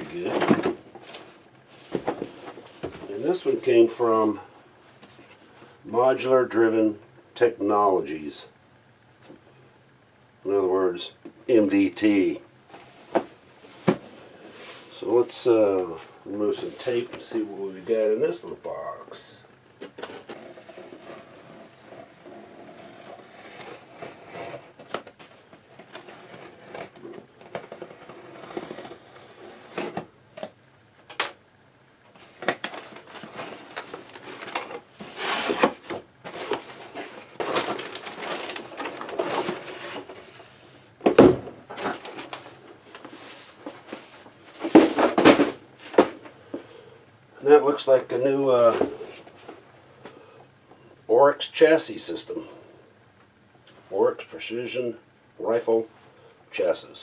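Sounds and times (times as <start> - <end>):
cardboard scraping and rustling: 0.0 - 3.7, 12.7 - 18.0, 19.8 - 30.5, 32.1 - 46.3.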